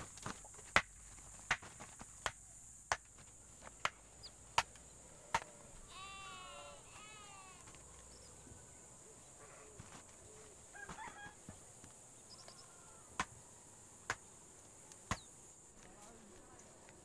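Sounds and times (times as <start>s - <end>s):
steady high hiss: 0.0s - 17.0s
animal calling: 5.8s - 7.7s.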